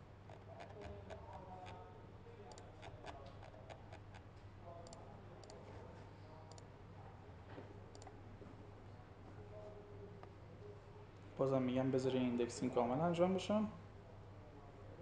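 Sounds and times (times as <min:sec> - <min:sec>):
faint low hum: 0:00.0 - 0:15.0
computer mouse clicking: 0:02.5 - 0:05.6.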